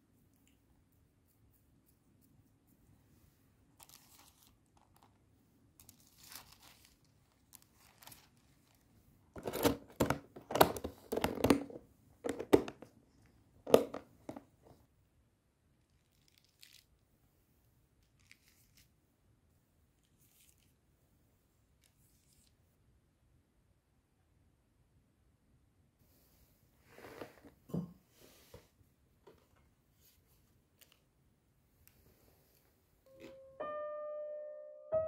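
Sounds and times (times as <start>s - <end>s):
plastic sheets crinkling: 3.8s - 5.2s, 5.8s - 12.7s.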